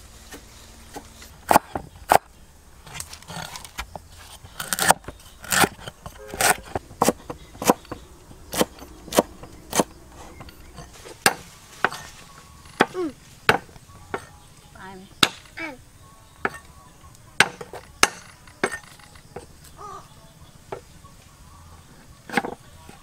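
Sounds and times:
knife chopping: 0.3s - 2.3s, 2.9s - 12.1s, 17.4s - 19.5s.

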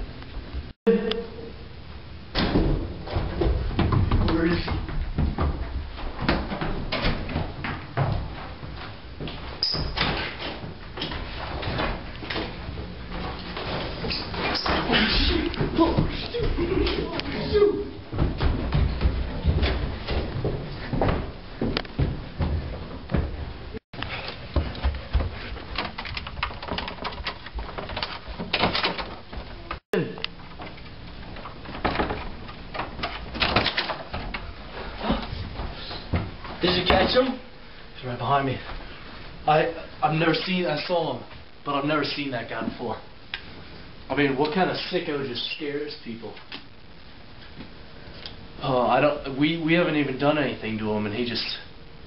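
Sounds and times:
scuffing footsteps: 10.2s - 25.8s
door thuds and knocks: 18.1s - 23.4s.

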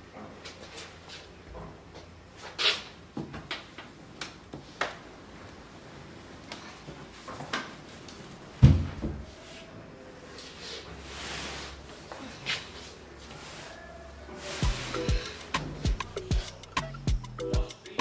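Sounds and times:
knocks and clicks of furniture: 8.6s - 9.3s.

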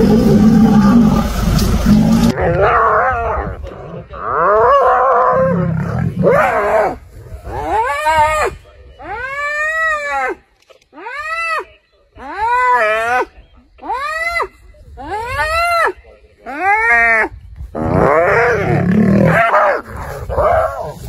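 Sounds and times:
lion growling deeply: 0.0s - 7.4s, 17.8s - 21.0s.

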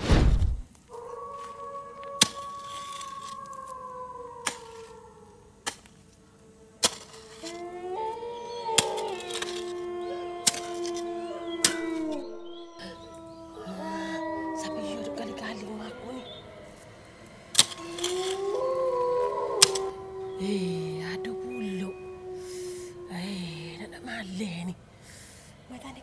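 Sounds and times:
animal howling: 0.8s - 24.8s
shovel chopping into soil: 6.8s - 7.6s, 8.8s - 9.7s, 17.5s - 18.4s.

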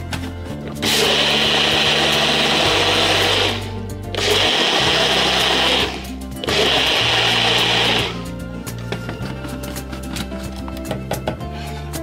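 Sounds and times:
blender blending liquid: 0.8s - 8.3s.

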